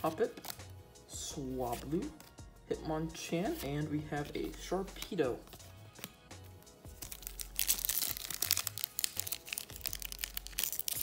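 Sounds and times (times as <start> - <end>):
foil wrapper crinkling and tearing: 7.0 - 11.0.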